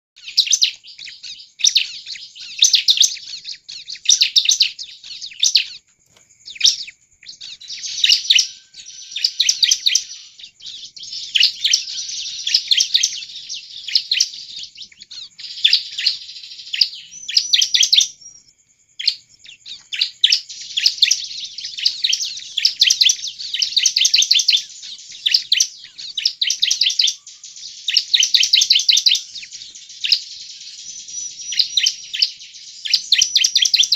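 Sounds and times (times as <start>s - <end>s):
bird singing sharp high notes: 0.2s - 18.4s.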